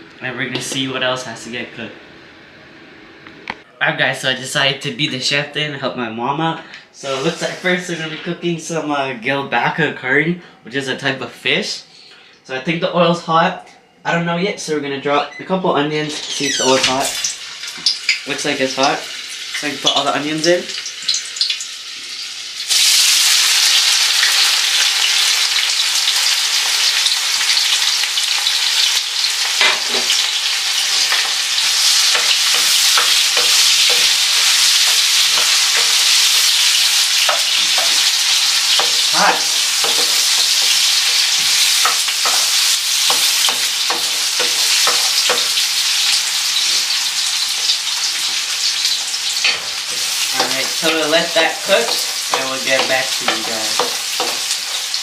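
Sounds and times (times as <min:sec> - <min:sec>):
onions sizzling in hot oil: 0:07.0 - 0:08.0, 0:17.0 - 0:55.0.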